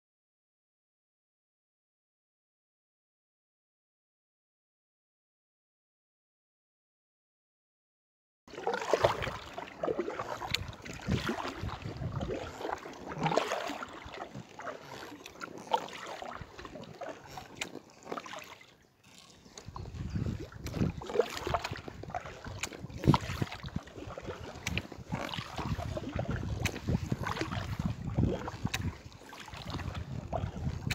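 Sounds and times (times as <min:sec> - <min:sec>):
paddle splashes and drips: 0:08.5 - 0:30.9
wind rumble on microphone: 0:10.4 - 0:12.8, 0:19.7 - 0:30.9.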